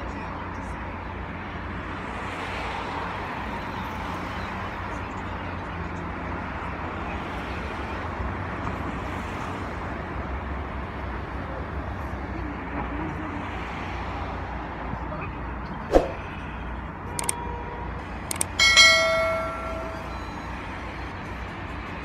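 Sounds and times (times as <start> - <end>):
low traffic rumble: 0.0 - 22.0.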